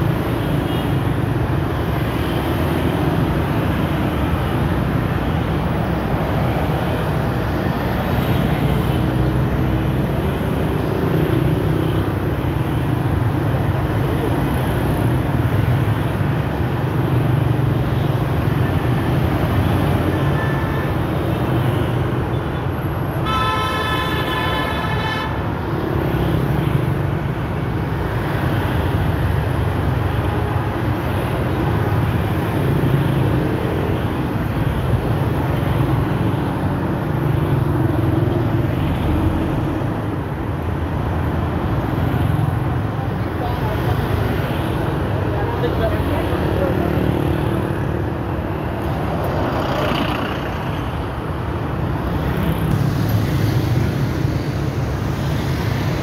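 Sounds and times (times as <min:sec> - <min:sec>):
vehicle horn: 0:23.2 - 0:25.4
scooters and motorbikes passing: 0:41.8 - 0:51.1.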